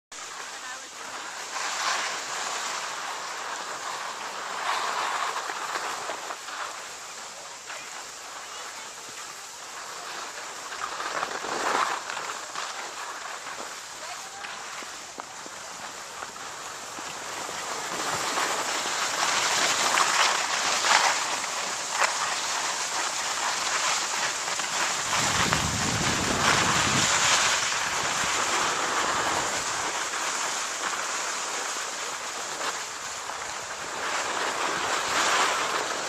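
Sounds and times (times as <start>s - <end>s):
skis sliding on snow: 0.1s - 36.0s
wind buffeting microphone: 25.0s - 28.6s.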